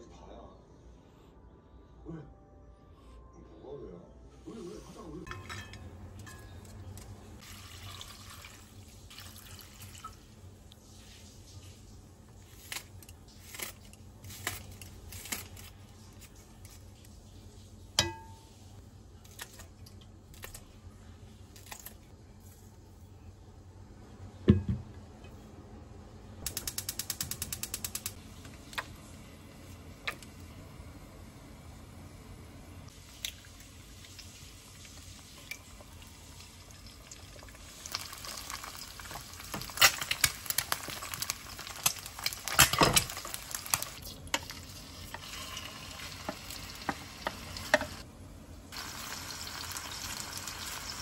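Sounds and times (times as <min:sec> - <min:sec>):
utensils clattering against pot: 0:05.3 - 0:07.2
gas stove igniter clicking: 0:26.5 - 0:28.2.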